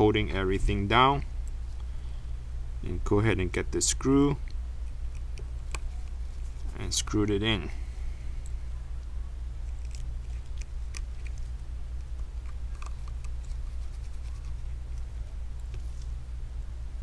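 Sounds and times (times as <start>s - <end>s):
steady low hum: 0.0s - 17.0s
screwdriver clicks and scratches: 9.7s - 15.8s.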